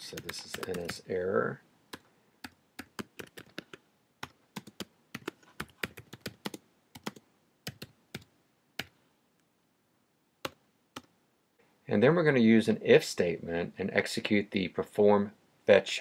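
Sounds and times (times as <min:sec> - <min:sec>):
typing on keyboard: 0:00.2 - 0:01.0, 0:01.9 - 0:08.9.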